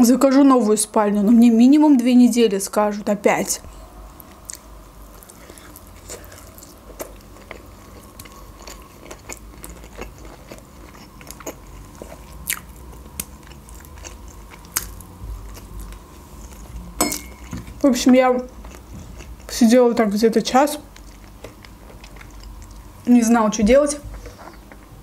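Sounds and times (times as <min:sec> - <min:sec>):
person chewing: 0:03.8 - 0:17.8, 0:18.5 - 0:19.5, 0:20.9 - 0:23.0, 0:24.1 - 0:25.0.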